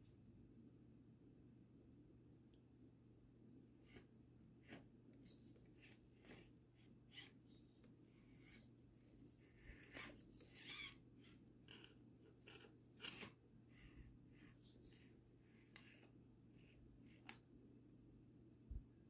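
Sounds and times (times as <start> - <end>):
low steady hum: 0.0 - 19.0
toy crawler scraping and clicking: 9.5 - 16.1.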